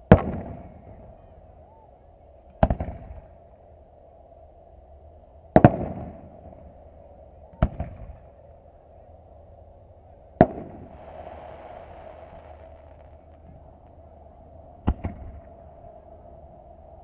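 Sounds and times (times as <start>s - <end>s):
distant firework booms: 10.8s - 14.0s.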